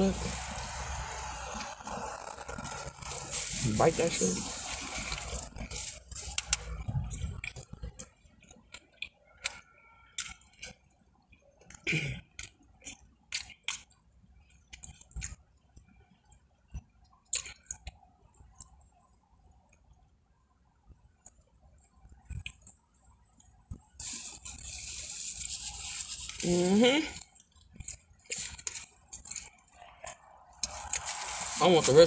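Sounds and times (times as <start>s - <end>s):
wet chewing: 4.5s - 16.0s, 16.7s - 18.9s, 22.1s - 26.5s, 27.1s - 31.5s.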